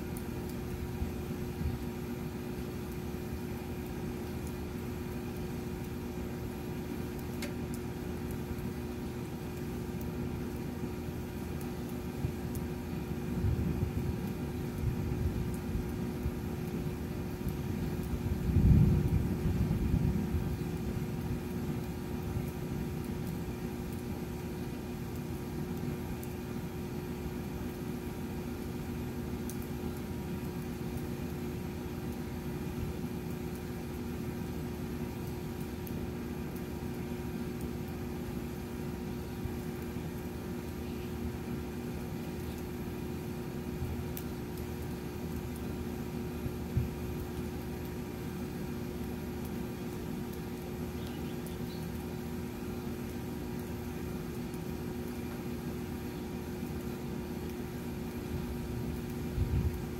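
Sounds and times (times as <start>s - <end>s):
low rumble and hum: 0.0s - 59.9s
faint tick: 7.2s - 7.8s.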